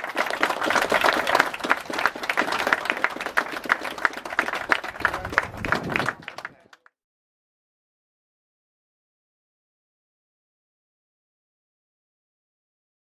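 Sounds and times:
small group applauding: 0:00.0 - 0:07.0.

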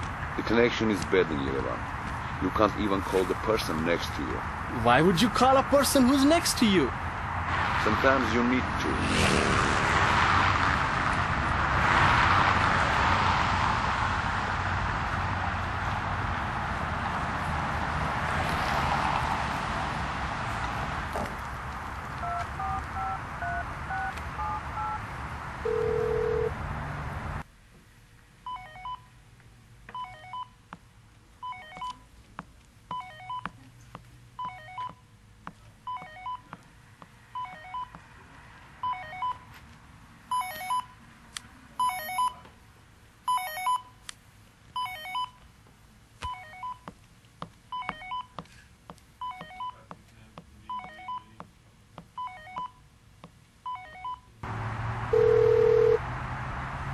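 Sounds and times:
street noise: 0:00.0 - 0:56.9
telephone ringing: 0:22.2 - 0:25.0, 0:25.6 - 0:26.5, 0:40.3 - 0:40.9, 0:43.3 - 0:43.8, 0:53.7 - 0:54.2, 0:55.1 - 0:56.0
touch-tone keypad beeps: 0:22.2 - 0:25.0, 0:28.5 - 0:29.1, 0:29.9 - 0:30.5, 0:31.4 - 0:32.1, 0:32.9 - 0:33.6, 0:34.4 - 0:35.0, 0:35.9 - 0:36.5, 0:37.4 - 0:38.0, 0:38.8 - 0:39.4, 0:40.3 - 0:40.9, 0:41.8 - 0:42.4, 0:43.3 - 0:43.9, 0:44.8 - 0:45.4, 0:46.2 - 0:46.9, 0:47.8 - 0:48.4, 0:49.2 - 0:49.9, 0:50.7 - 0:51.3, 0:52.2 - 0:52.8, 0:53.7 - 0:54.3.

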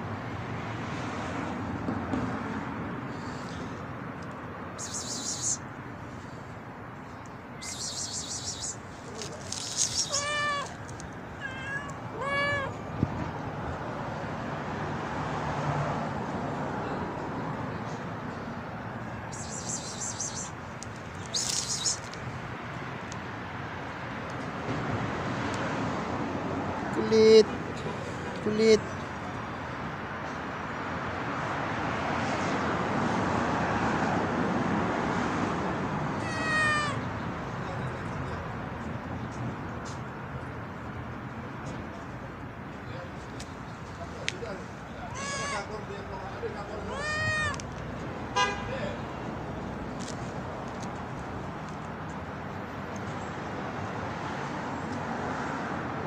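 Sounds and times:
vehicle passing: 0:00.0 - 0:28.9, 0:31.0 - 0:39.8
cat meowing: 0:09.5 - 0:10.8, 0:11.4 - 0:12.8, 0:36.2 - 0:37.1, 0:45.1 - 0:45.7, 0:46.8 - 0:47.6.

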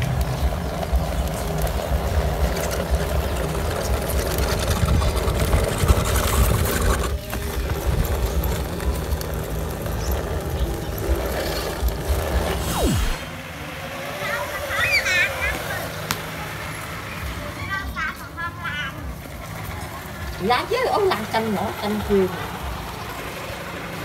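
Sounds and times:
toy truck motor and gearbox: 0:00.0 - 0:12.5
tyres churning through mud and water: 0:00.0 - 0:24.0.

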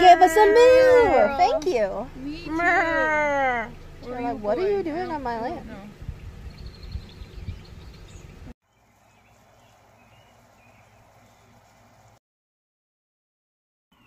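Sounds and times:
wind rumbling on microphone: 0:03.6 - 0:08.5.

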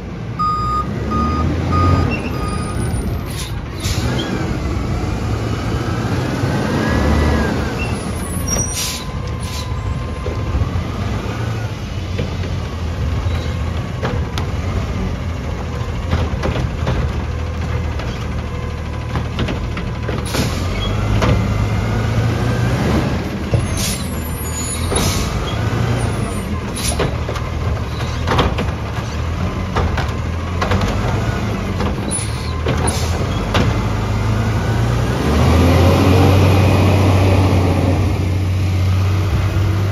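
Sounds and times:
diesel truck engine running: 0:00.0 - 0:39.9
metal clanks and knocks: 0:15.5 - 0:21.5, 0:26.5 - 0:33.9.

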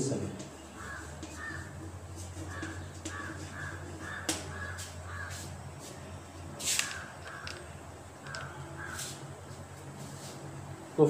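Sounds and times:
chalk knocking on blackboard: 0:00.4 - 0:05.5
crows cawing: 0:00.5 - 0:05.6, 0:06.8 - 0:09.3
chalk scraping: 0:00.7 - 0:06.0.

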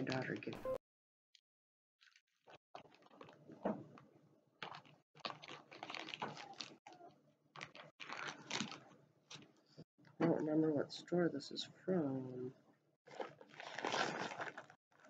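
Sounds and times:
packaging crinkling and rustling: 0:02.0 - 0:04.0, 0:04.6 - 0:09.6, 0:13.1 - 0:15.0.

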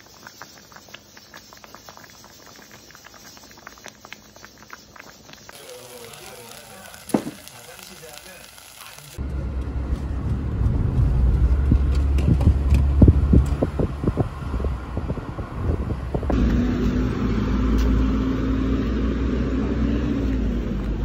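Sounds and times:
traffic hum: 0:05.6 - 0:21.0
engine drone: 0:09.1 - 0:21.0
car road noise rumble: 0:09.2 - 0:21.0
wind buffeting microphone: 0:09.5 - 0:16.4.

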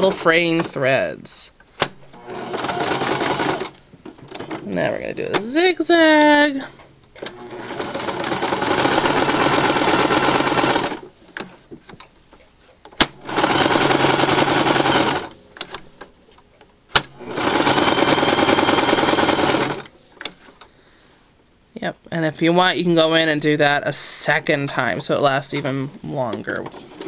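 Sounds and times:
electric sewing machine running: 0:02.1 - 0:03.8, 0:07.3 - 0:11.0, 0:13.2 - 0:15.3, 0:17.1 - 0:19.9.

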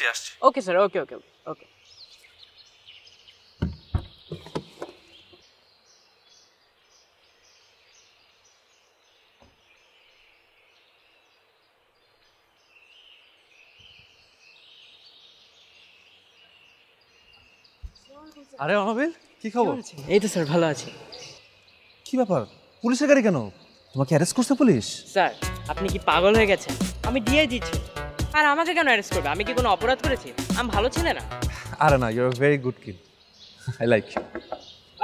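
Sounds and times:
birds chirping: 0:00.0 - 0:35.0
knocks or thumps: 0:03.6 - 0:05.0.

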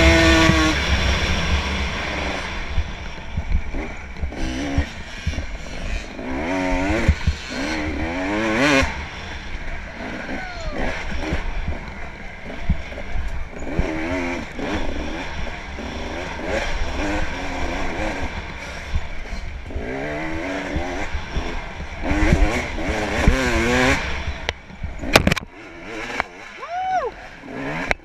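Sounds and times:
dirt bike engine revving: 0:00.0 - 0:28.0.

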